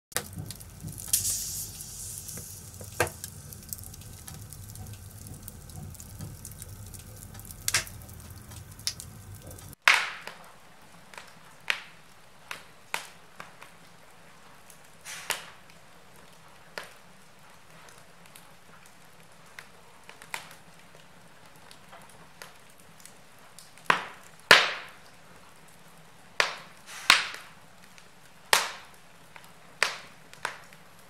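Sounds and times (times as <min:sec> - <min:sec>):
low hiss of fire: 0:00.1 - 0:09.8, 0:14.6 - 0:15.7, 0:26.4 - 0:28.0
wood fire crackling and popping: 0:00.1 - 0:31.0.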